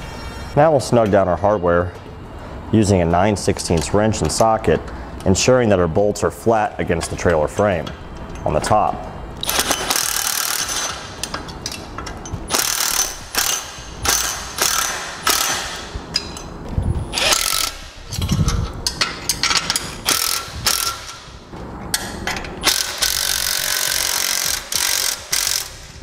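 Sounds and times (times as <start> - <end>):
impact wrench hammering: 9.4 - 16.4, 18.9 - 26.0.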